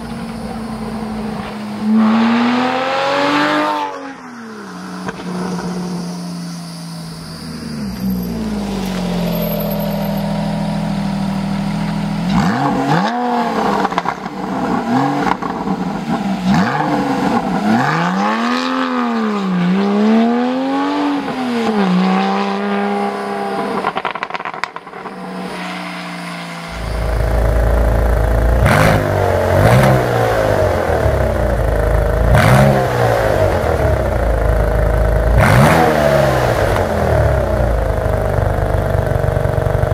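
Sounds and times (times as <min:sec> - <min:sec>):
sports car engine revving: 0:00.0 - 0:39.9
deep car engine rumble: 0:04.4 - 0:39.9.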